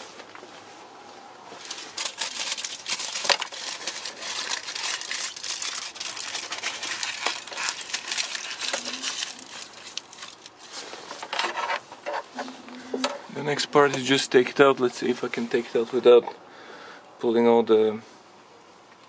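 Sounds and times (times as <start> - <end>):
aluminium foil crinkling: 1.6 - 12.3.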